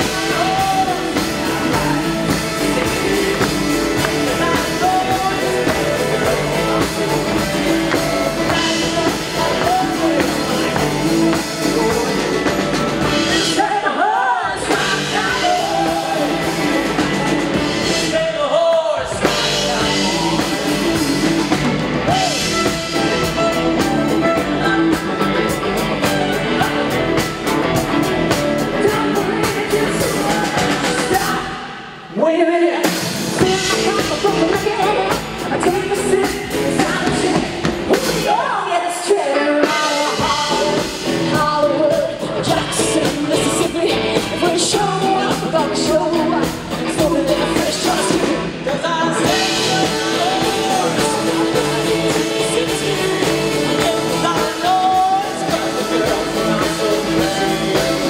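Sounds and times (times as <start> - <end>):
drum kit: 0.0 - 58.0
guitars: 0.0 - 58.0
male lead vocal: 0.0 - 58.0.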